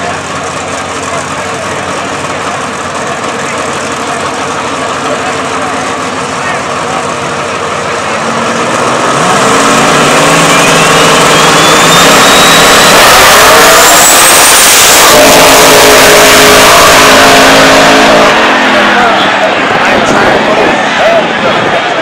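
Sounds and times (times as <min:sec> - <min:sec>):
drag car engines at full throttle: 0:00.0 - 0:22.0
high whine rising in pitch: 0:08.5 - 0:22.0.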